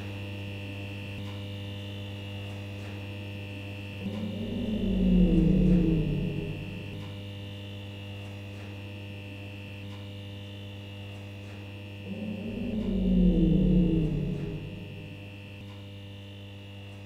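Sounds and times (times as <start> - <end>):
electrical hum: 0.0 - 7.9, 11.2 - 15.9
low wavering drone: 3.6 - 7.4, 11.9 - 15.6.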